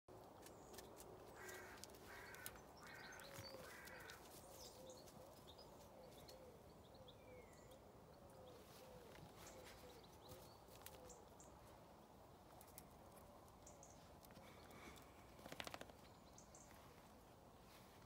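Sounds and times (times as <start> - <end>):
crow cawing: 1.4 - 4.3.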